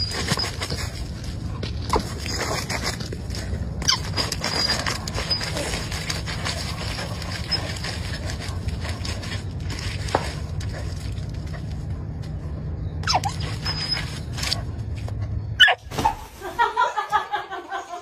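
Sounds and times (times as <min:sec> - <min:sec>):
dog scraping at wet dirt: 0:00.0 - 0:12.0
steady low rumble: 0:00.0 - 0:15.6.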